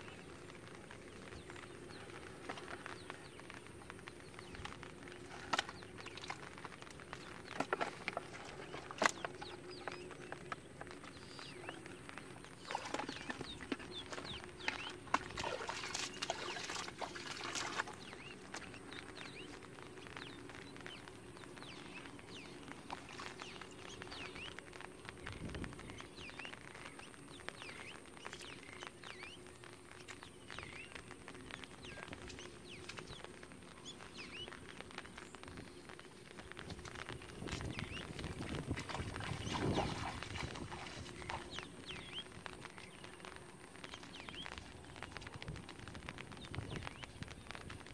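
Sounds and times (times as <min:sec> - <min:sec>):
water splashing and dripping: 0:00.0 - 0:47.9.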